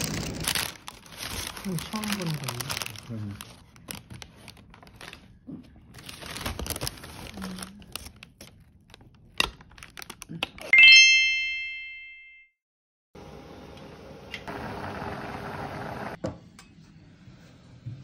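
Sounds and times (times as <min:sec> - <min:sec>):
paper bag crinkling: 0:00.0 - 0:10.3
bright rising chime: 0:10.8 - 0:12.5.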